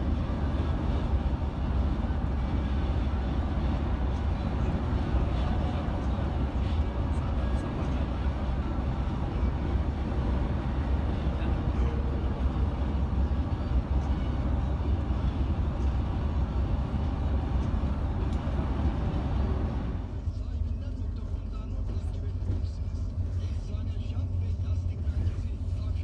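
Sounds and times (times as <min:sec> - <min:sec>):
tyre and road noise: 0:00.0 - 0:20.4
bus engine drone: 0:00.0 - 0:26.0.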